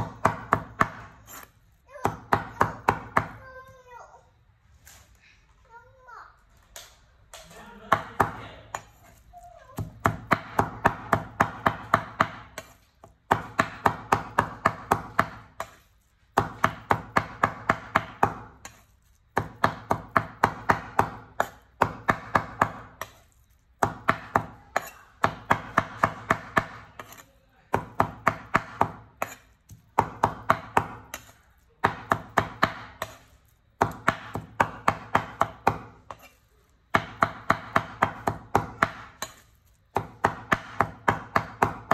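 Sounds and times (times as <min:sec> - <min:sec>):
cleaver chopping on wooden board: 0:00.0 - 0:03.4, 0:09.8 - 0:15.8, 0:16.4 - 0:18.8, 0:19.4 - 0:23.2, 0:23.8 - 0:36.3, 0:36.9 - 0:41.9.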